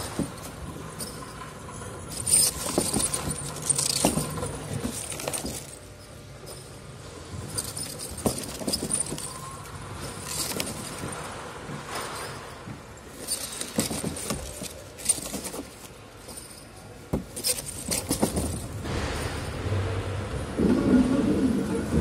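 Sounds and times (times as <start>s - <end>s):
plastic bottles crinkling and knocking: 2.1s - 6.0s, 7.4s - 18.9s.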